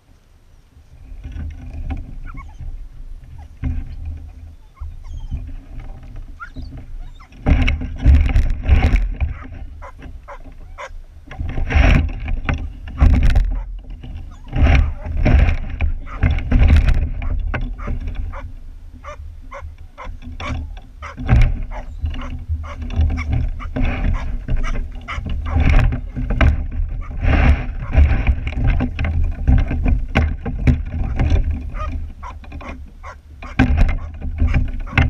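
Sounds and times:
wind rumble on microphone: 0:00.0 - 0:35.0
dogs barking and yelping: 0:02.2 - 0:05.7, 0:06.4 - 0:07.8, 0:09.2 - 0:11.0, 0:13.0 - 0:16.4, 0:17.1 - 0:26.3, 0:26.9 - 0:28.2, 0:30.9 - 0:35.0.

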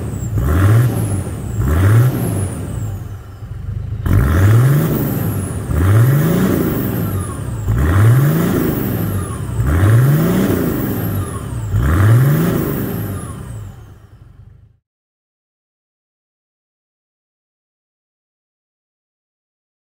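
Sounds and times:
diesel engine revving: 0:00.0 - 0:14.8.

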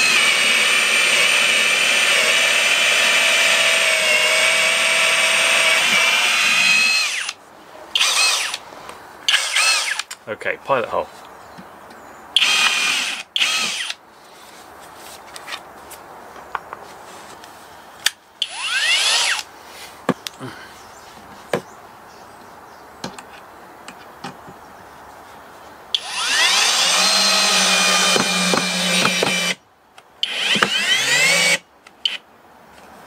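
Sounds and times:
cordless drill drilling into wood: 0:00.0 - 0:07.4, 0:08.0 - 0:08.6, 0:09.3 - 0:10.1, 0:12.4 - 0:14.0, 0:18.4 - 0:19.4, 0:26.0 - 0:29.6, 0:30.2 - 0:32.2.

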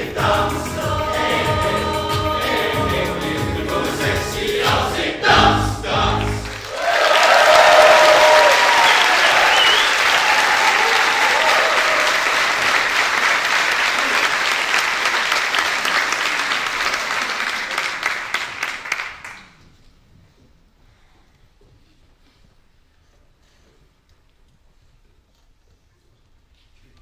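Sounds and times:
audience applause: 0:06.2 - 0:19.5.

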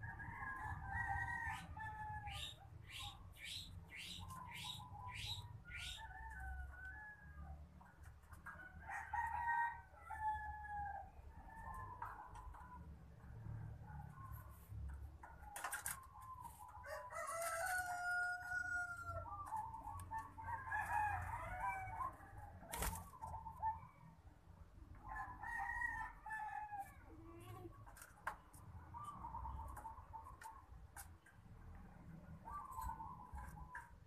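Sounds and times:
rooster crowing: 0:16.8 - 0:19.4.

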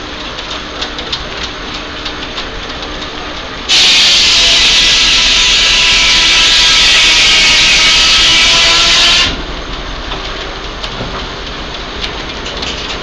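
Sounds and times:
belt-driven machinery running: 0:00.0 - 0:13.0
loud hissing with whining tones: 0:03.7 - 0:09.4.

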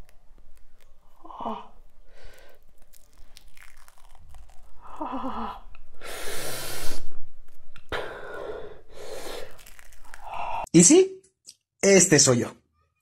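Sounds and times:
face mask peeling off skin: 0:00.0 - 0:10.7
person whimpering: 0:04.8 - 0:05.7
loud strained breath: 0:07.9 - 0:10.7.

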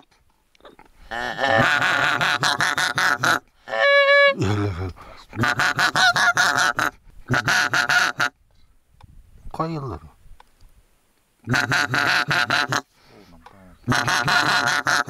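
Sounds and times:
goose honking: 0:01.0 - 0:04.4, 0:05.4 - 0:08.4, 0:11.5 - 0:12.9, 0:13.8 - 0:15.0.

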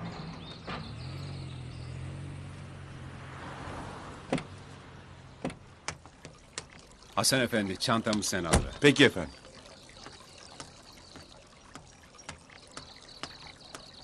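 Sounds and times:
vehicle engine running: 0:00.0 - 0:05.9.

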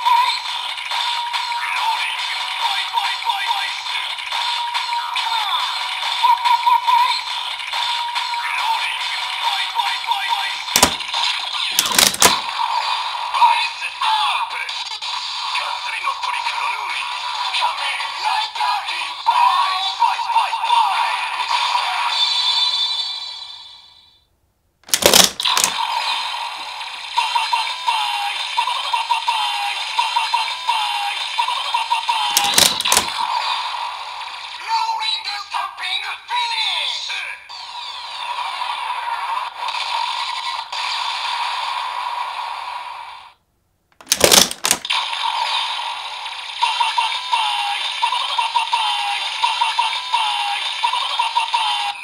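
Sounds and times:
plastic clicking and rattling: 0:10.8 - 0:11.1, 0:11.8 - 0:12.4, 0:24.9 - 0:25.8, 0:32.4 - 0:33.2, 0:44.0 - 0:44.9.

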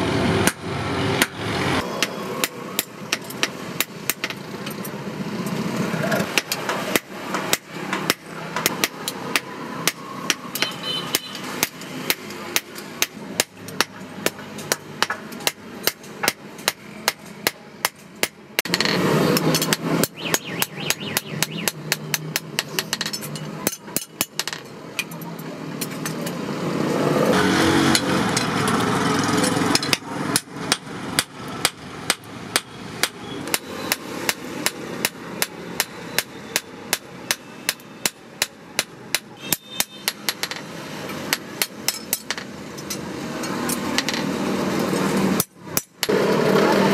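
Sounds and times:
hammer striking metal on anvil: 0:01.2 - 0:04.9, 0:06.2 - 0:25.2, 0:29.5 - 0:44.2.

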